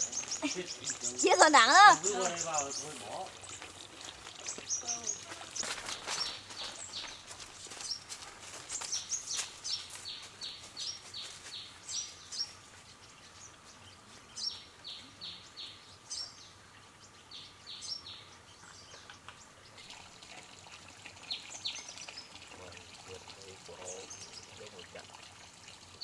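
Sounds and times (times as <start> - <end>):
songbird singing: 0.0 - 26.0.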